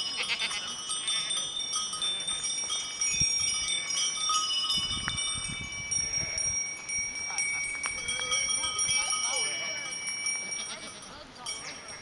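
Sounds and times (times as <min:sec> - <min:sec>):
goat bells ringing: 0:00.0 - 0:12.0.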